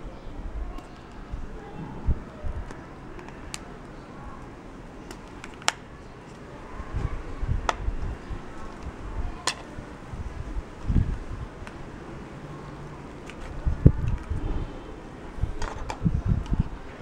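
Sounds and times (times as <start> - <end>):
handling noise rumble: 0.0 - 17.0
plastic phone cover snapping: 5.1 - 5.8.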